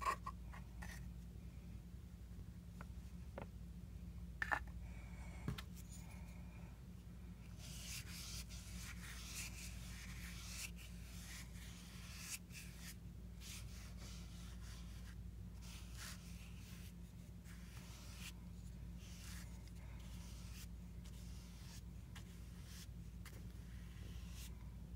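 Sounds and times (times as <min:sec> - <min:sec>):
paintbrush scratching on paper: 0:07.6 - 0:24.6.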